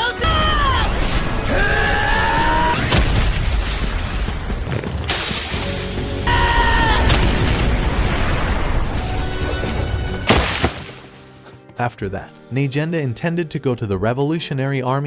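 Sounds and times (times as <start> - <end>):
background music: 0.0 - 15.0
sharp crash: 10.2 - 11.2.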